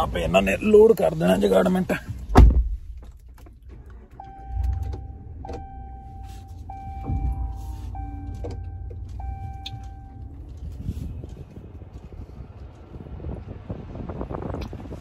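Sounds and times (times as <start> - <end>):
car engine starting and running: 0.0 - 15.0
car door shutting: 2.2 - 11.4
car warning chime: 4.2 - 11.3.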